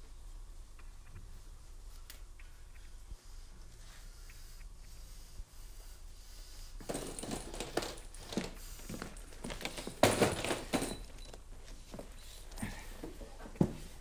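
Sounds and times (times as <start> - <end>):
footsteps: 6.8 - 14.0
sleeping bags rustling: 6.8 - 14.0.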